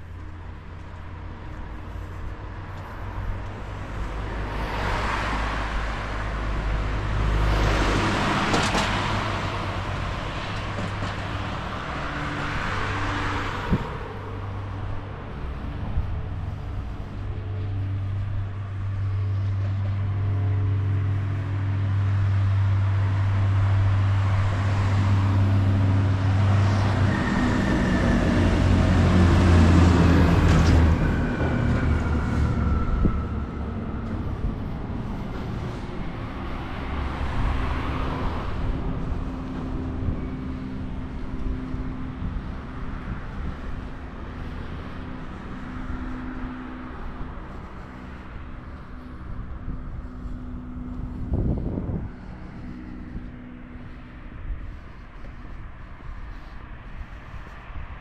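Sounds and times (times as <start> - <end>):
vehicle passing by: 0.0 - 58.0.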